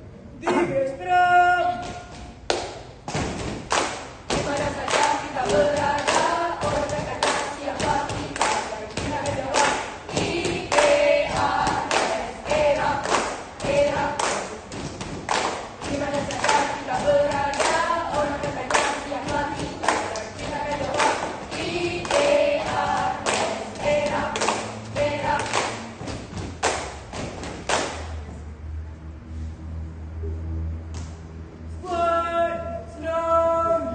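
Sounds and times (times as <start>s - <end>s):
stamps and claps beat: 1.8s - 28.2s
young voices singing together: 3.7s - 28.1s, 31.8s - 33.9s.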